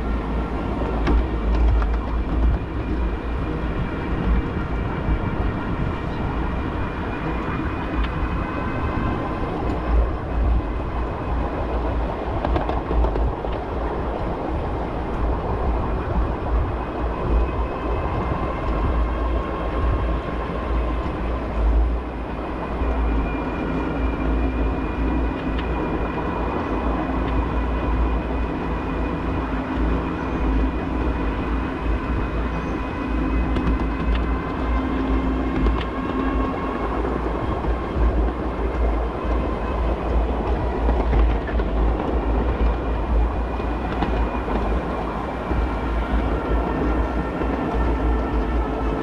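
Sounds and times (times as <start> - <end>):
miniature train wheels rumbling: 0.0 - 49.0
clicks over rail joints: 0.8 - 2.7, 12.4 - 13.7.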